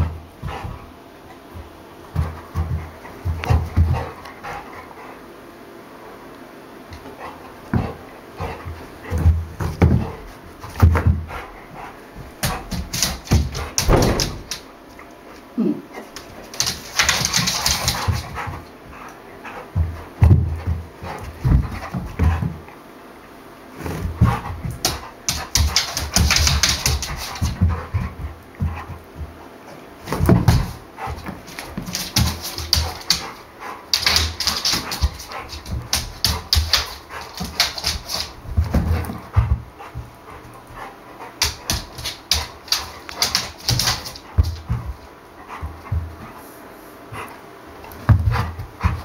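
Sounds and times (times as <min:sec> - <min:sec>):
dog claws scratching on floor: 0:16.1 - 0:18.6, 0:30.1 - 0:40.0, 0:40.8 - 0:45.0.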